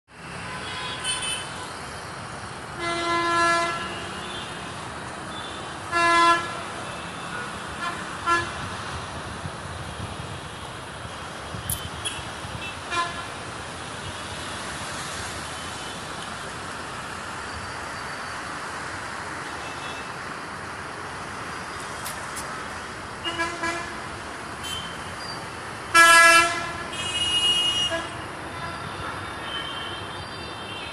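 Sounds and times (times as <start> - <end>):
city street traffic hum: 0.1 - 30.9
car horns honking: 24.6 - 25.1, 25.9 - 30.9.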